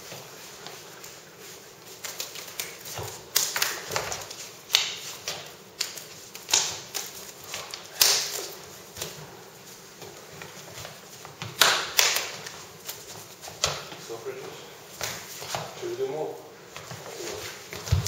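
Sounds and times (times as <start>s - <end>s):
hands slapping and tapping: 1.9s - 9.2s, 11.4s - 14.0s.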